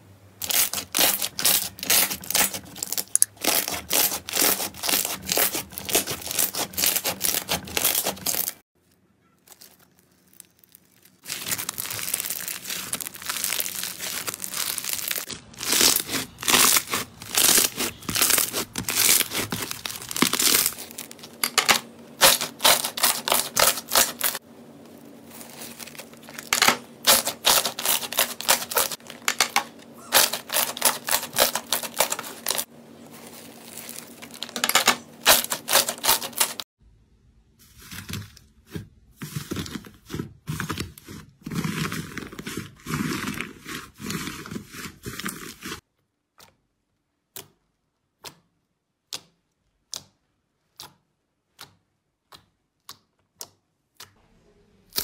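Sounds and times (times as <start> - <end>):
slime squeezed crackling and popping: 9.4 - 21.4.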